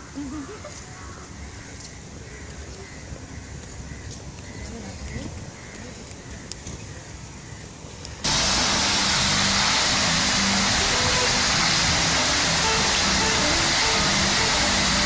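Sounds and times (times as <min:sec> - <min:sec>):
fountain water splashing: 0:08.2 - 0:15.0.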